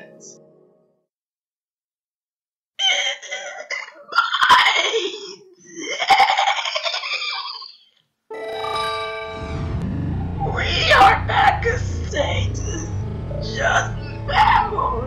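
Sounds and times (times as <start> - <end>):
person giggling: 4.8 - 7.9.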